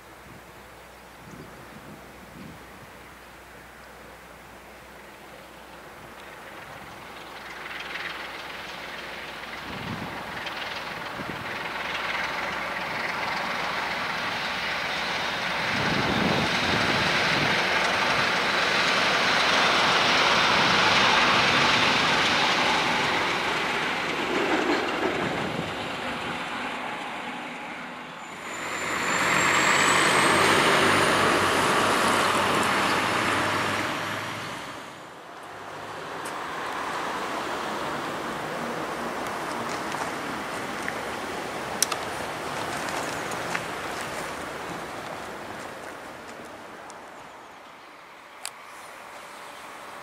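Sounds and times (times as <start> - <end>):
diesel locomotive rumbling past: 3.0 - 50.0
faint rising whistle: 27.6 - 31.3.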